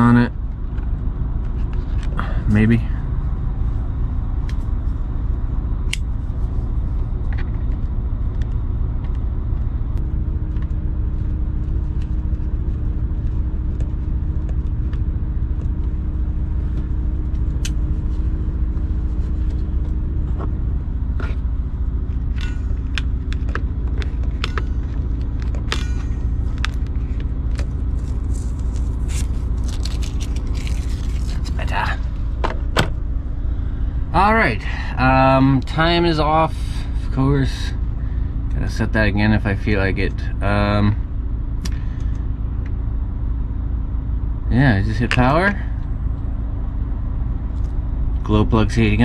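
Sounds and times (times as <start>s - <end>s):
low machine rumble with hum: 0.0s - 49.0s.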